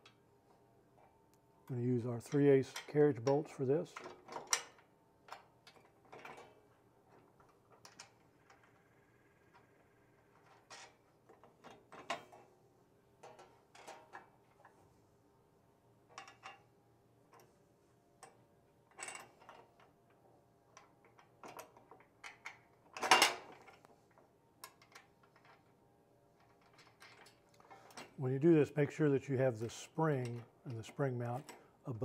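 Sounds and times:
metal hardware clicking and clinking: 2.2 - 8.8, 16.1 - 16.7, 18.2 - 25.8, 26.4 - 28.2, 29.6 - 32.0.

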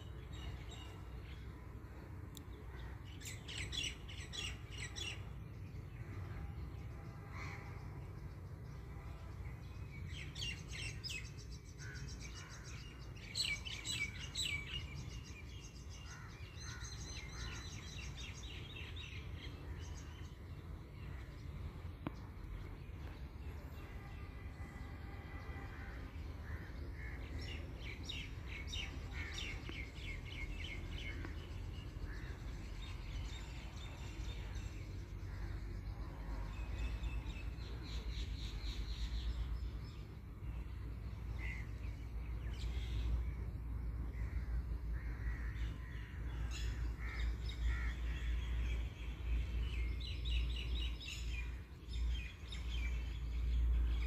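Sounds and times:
birds calling: 10.0 - 24.2, 25.3 - 35.9, 44.0 - 54.0.

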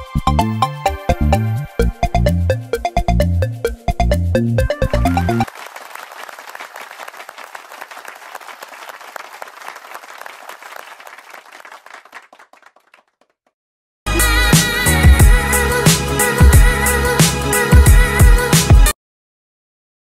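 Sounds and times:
loud music: 0.0 - 5.5, 14.1 - 18.9
applause: 5.4 - 13.4.

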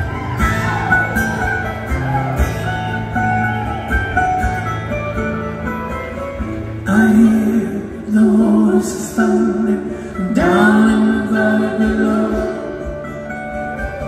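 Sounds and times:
live band with guitars: 0.0 - 14.0.

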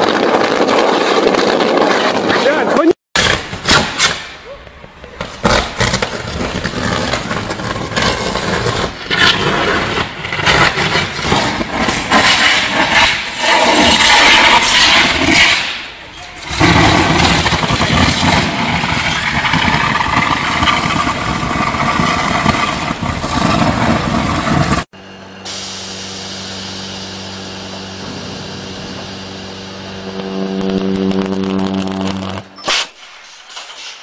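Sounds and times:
electric arc buzzing: 25.6 - 32.6.

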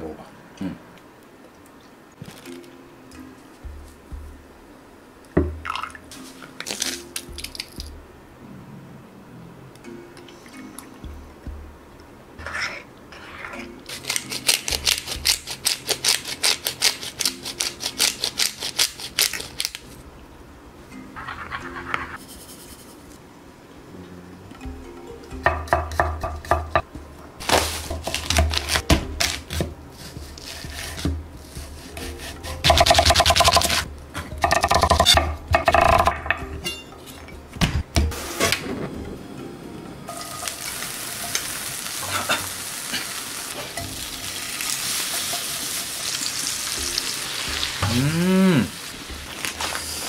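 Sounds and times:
frying pan sizzling: 40.1 - 50.0.

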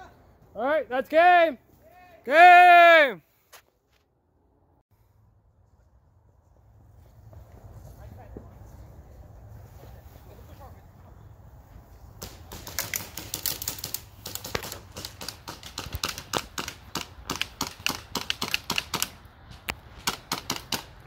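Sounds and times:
airsoft guns firing: 12.2 - 19.2, 20.0 - 21.0.

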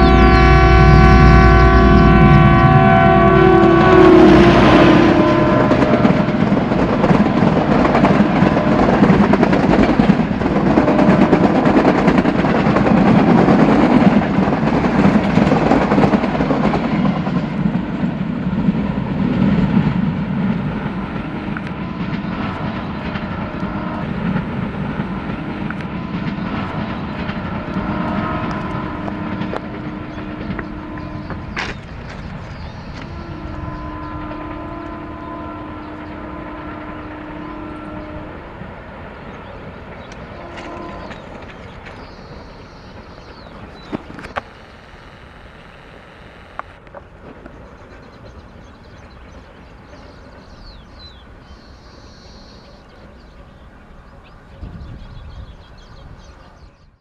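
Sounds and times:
locomotive horn: 0.0 - 9.4, 21.3 - 24.3, 26.0 - 31.9, 32.9 - 38.6, 40.3 - 41.6
train wheels clattering over rail joints: 5.3 - 23.6, 24.2 - 33.2, 39.4 - 44.5.

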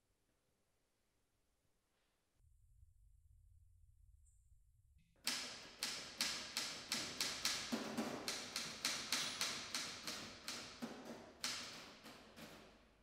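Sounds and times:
manual typewriter key clacks: 5.3 - 12.7.

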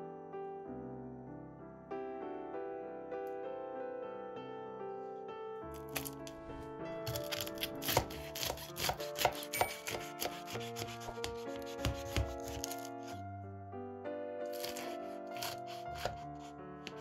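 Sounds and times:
soft piano music: 0.0 - 17.0
knife cutting crisp crust: 7.1 - 13.2, 14.5 - 17.0.

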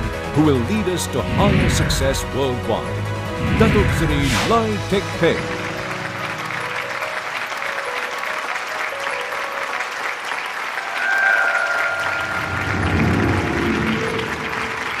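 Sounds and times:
background music: 0.0 - 15.0
crowd applauding: 4.6 - 15.0
held musical note: 9.2 - 15.0.

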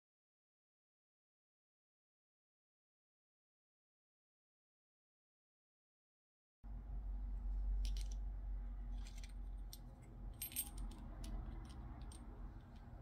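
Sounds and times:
low steady hum: 6.6 - 13.0
metal lock parts clicking: 7.8 - 8.2, 9.0 - 13.0.

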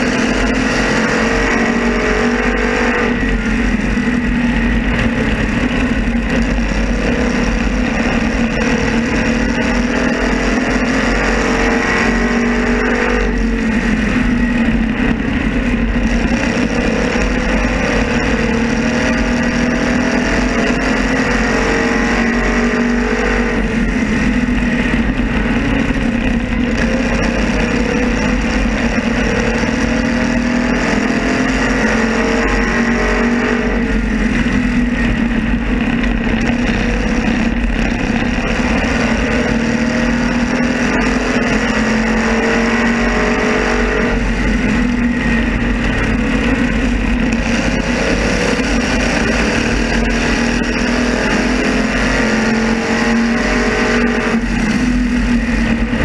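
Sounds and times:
other race cars: 0.0 - 56.0
race car engine: 0.0 - 56.0.

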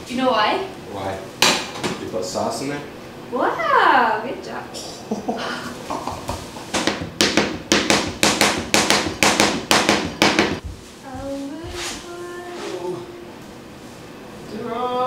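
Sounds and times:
knife chopping on cutting board: 6.2 - 10.7.

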